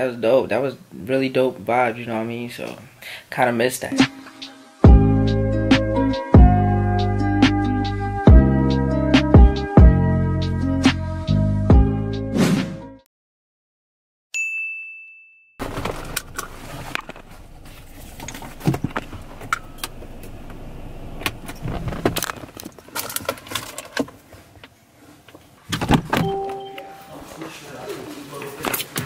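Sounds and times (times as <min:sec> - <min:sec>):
bright ding: 0:14.4 - 0:15.5, 0:26.2 - 0:27.3
brief pitched tone: 0:26.2 - 0:27.5.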